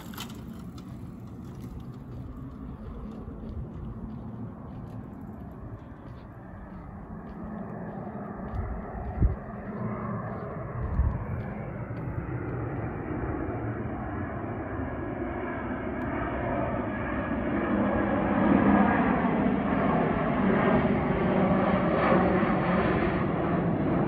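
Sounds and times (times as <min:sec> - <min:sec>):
aircraft engine noise: 0:00.0 - 0:24.0.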